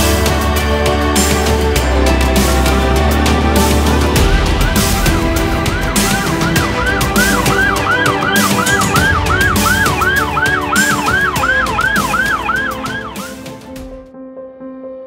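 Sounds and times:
background music: 0.0 - 15.0
police siren yelping: 3.4 - 13.6.

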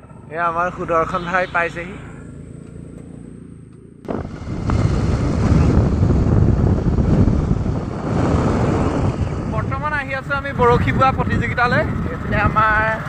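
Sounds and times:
scooter engine running: 0.0 - 9.3
wind buffeting microphone: 4.0 - 13.0.

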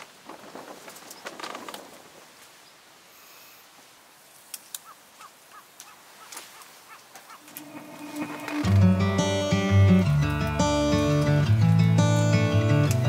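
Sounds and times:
small bird chirping: 4.8 - 7.5.

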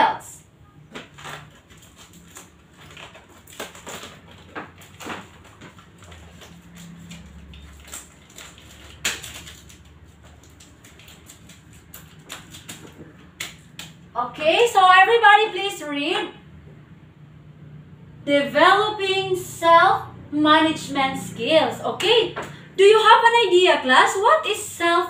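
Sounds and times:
paper rustling and crackling: 0.9 - 14.0
hand tapping paper on wall: 3.3 - 14.1.

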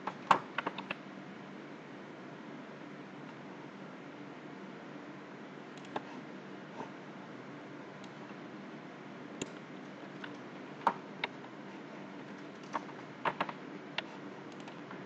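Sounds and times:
keyboard and mouse clicks: 0.0 - 1.0, 5.8 - 6.1, 9.4 - 11.4, 12.2 - 15.0
faint steady hum: 0.0 - 15.0.

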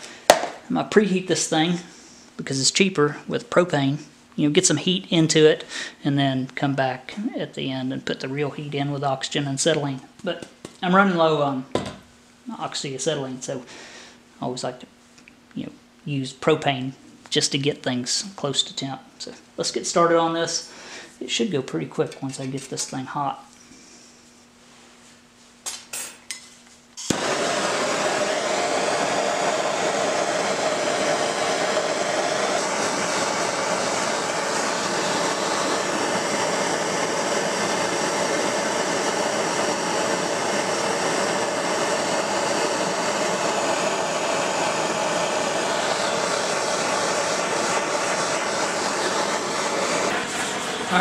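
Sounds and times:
propane torch flame hissing: 0.0 - 2.6, 27.0 - 51.0.

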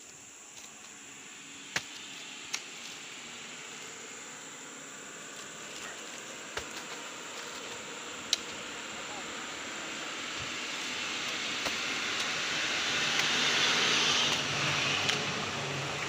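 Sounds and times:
haze of noise: 0.0 - 16.0
insects buzzing: 0.0 - 16.0.

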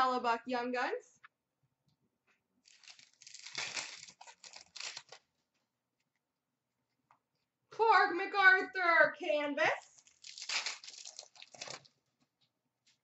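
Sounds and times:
card pack wrapper tearing: 2.7 - 5.2, 10.0 - 11.9.

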